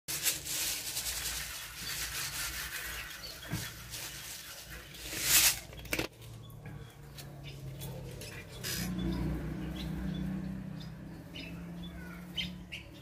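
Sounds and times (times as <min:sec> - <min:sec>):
plastic bag crinkling: 0:00.1 - 0:06.1
grain pouring and pattering: 0:00.1 - 0:06.2.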